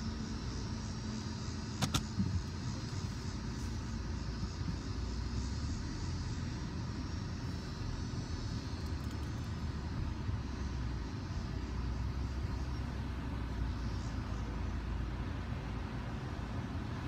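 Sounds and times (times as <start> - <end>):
road rumble inside car: 0.0 - 17.0.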